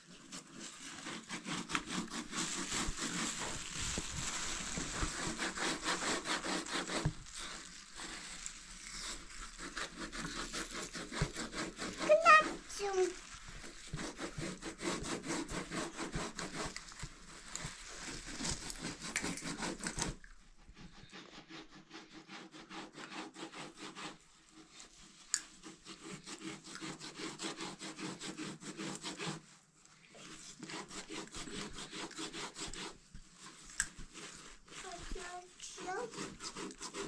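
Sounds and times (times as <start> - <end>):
cloth being cut rasping: 0.1 - 20.2, 30.2 - 37.0.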